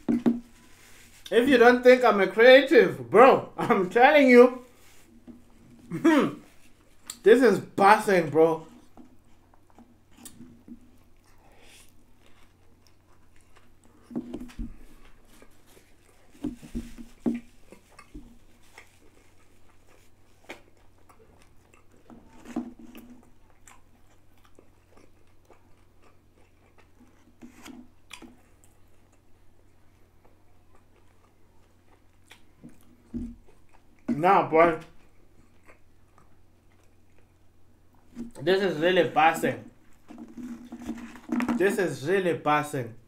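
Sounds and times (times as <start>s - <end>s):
person chewing crunchy food: 8.7s - 34.1s, 34.9s - 38.4s.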